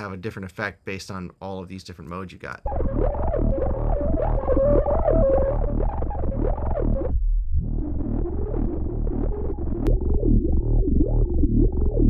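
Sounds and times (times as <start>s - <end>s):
electronic loop with pulsing bass: 2.7s - 12.0s
sweeping resonant filter: 2.7s - 12.0s.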